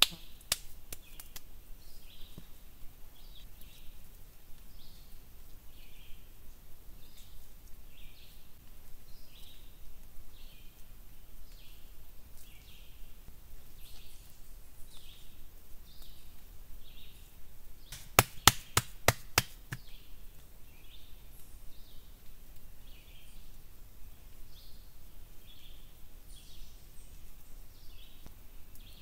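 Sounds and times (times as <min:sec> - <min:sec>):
rock knocking on hard surface: 0:18.0 - 0:19.9.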